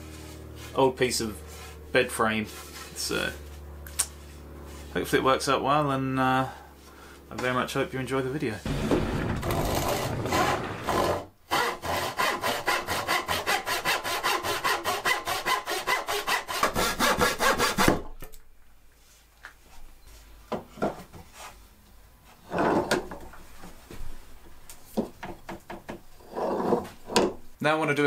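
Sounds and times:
quiet knocks: 8.7s - 11.2s
handsaw cutting wood: 8.7s - 18.1s.

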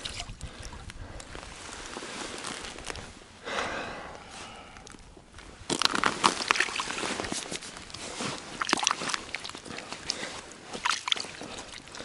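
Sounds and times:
ice chips crunching and scraping: 5.7s - 9.8s.

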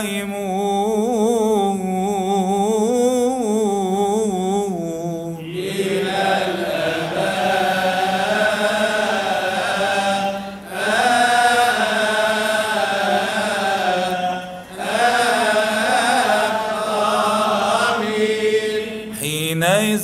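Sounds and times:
man chanting melismatic line: 8.3s - 20.0s.

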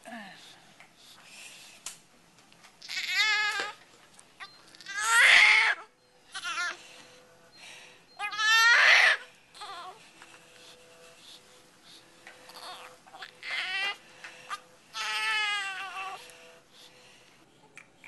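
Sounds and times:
newborn baby crying: 2.8s - 3.8s, 4.7s - 6.8s, 8.2s - 10.0s, 12.5s - 16.2s.

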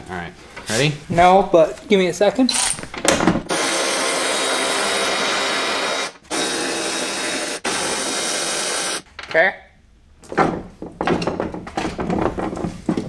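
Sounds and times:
power tool running: 3.5s - 9.0s.

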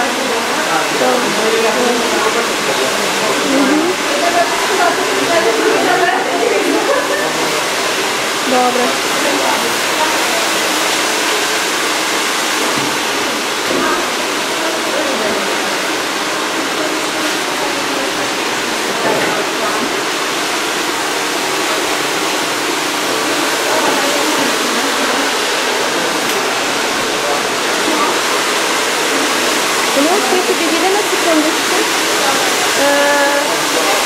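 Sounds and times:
faint murmured voices: 0.0s - 34.0s
hair dryer running: 0.0s - 34.0s.

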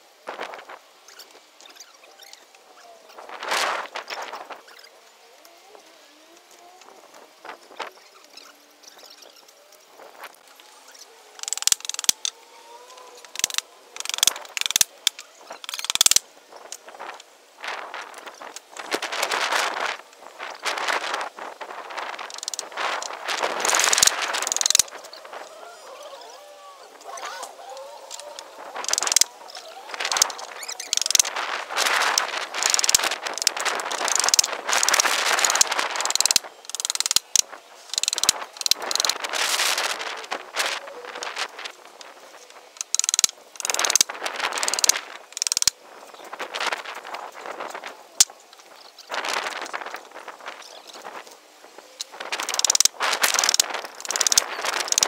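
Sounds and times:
nails creaking out of wood: 10.9s - 12.3s, 12.9s - 16.2s, 22.2s - 25.5s, 28.1s - 40.4s, 42.6s - 45.7s, 52.0s - 55.0s.

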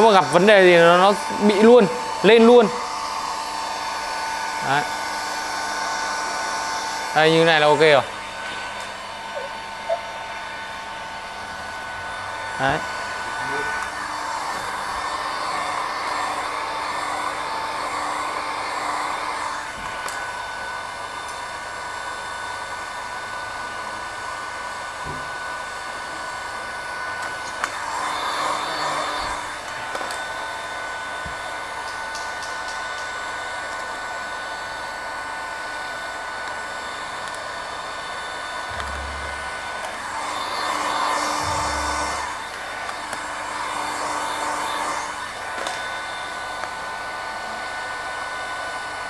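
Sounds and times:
heat gun fan whirring: 0.0s - 49.0s.

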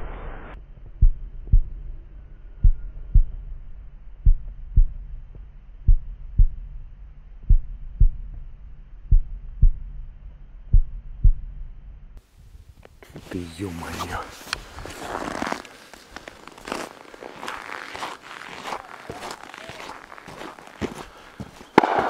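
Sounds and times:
heartbeat thumps: 0.8s - 2.0s, 2.6s - 12.0s.

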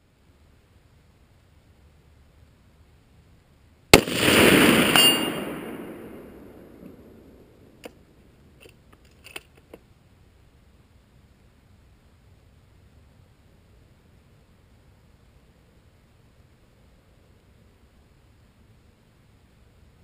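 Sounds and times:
rifle shot with rolling echo: 3.9s - 7.8s.

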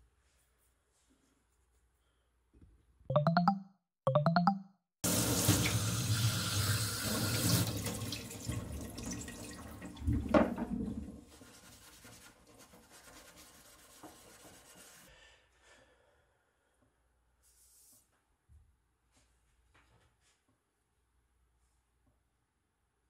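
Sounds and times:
tap water splashing into metal sink: 5.2s - 11.0s.

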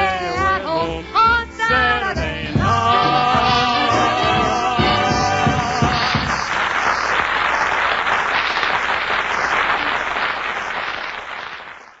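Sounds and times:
audience applauding on old radio: 4.9s - 12.0s.

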